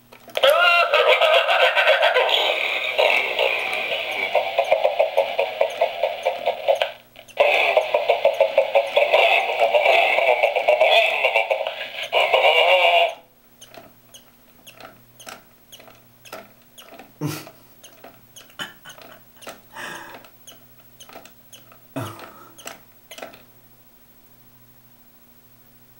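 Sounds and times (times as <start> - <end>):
faint mechanism hum: 0.0 - 25.9
toy electronic singing: 0.4 - 13.2
toy mechanism clicks: 2.8 - 9.8, 13.0 - 23.5.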